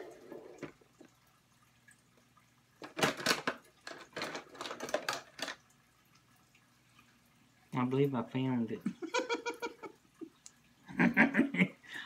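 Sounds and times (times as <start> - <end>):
plastic containers clattering: 2.8 - 5.6.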